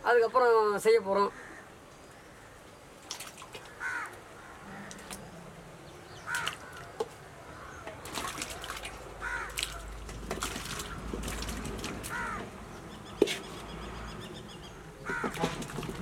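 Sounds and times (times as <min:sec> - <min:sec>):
crows cawing: 0:01.2 - 0:02.7, 0:03.6 - 0:05.3, 0:06.2 - 0:10.0, 0:12.0 - 0:12.5, 0:15.0 - 0:15.6
fruit chunks splashing into water: 0:06.3 - 0:07.2, 0:07.9 - 0:12.6, 0:15.0 - 0:16.0.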